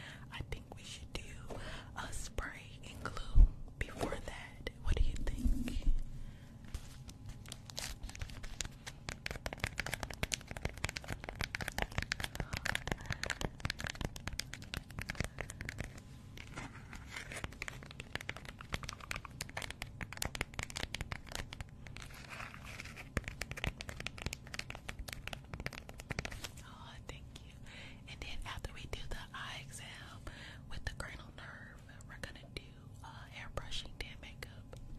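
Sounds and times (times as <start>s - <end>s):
packaging crinkling: 6.7s - 26.6s.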